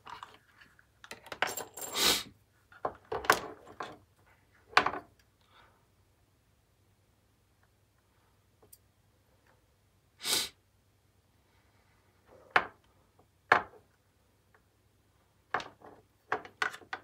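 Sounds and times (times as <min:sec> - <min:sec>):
wires scraping and rustling: 0:00.0 - 0:04.7.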